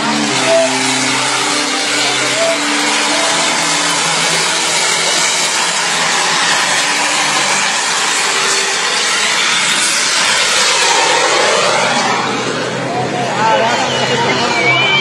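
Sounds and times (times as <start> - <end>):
model jet turbine roar: 0.0 - 15.0.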